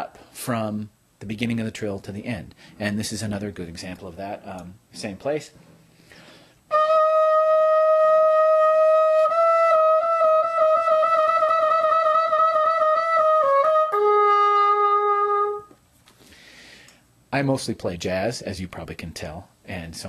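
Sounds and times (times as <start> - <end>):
solo trumpet trilling: 6.7 - 15.8.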